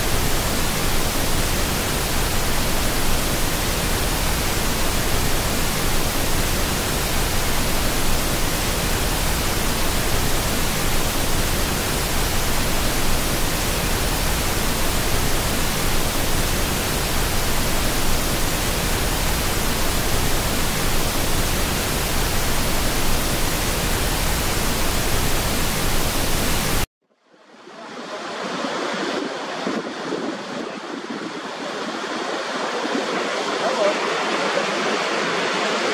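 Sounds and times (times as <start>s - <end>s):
rushing waterfall: 0.0s - 26.9s, 27.5s - 35.9s
steady white noise hiss: 0.0s - 35.9s.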